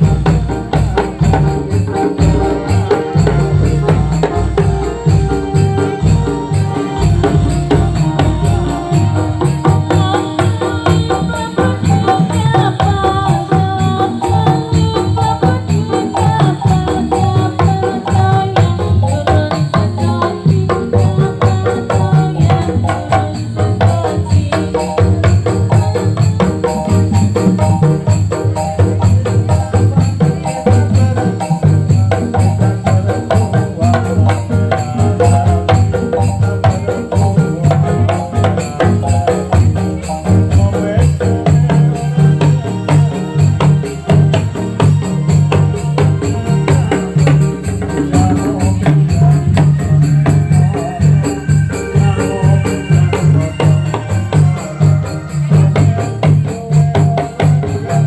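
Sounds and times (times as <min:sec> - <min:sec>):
melody line: 0:00.0 - 0:11.6
drums beating: 0:00.0 - 0:58.0
jingling percussion: 0:00.0 - 0:58.0.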